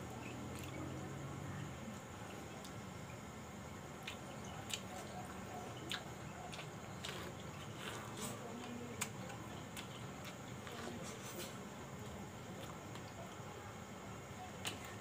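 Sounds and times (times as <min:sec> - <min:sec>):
person chewing corn on the cob: 0:04.0 - 0:11.5.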